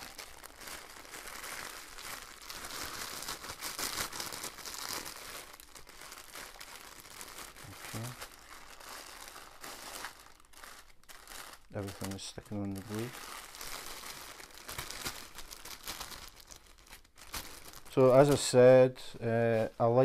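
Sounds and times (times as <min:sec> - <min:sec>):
plastic packaging crinkling: 0:00.0 - 0:20.0.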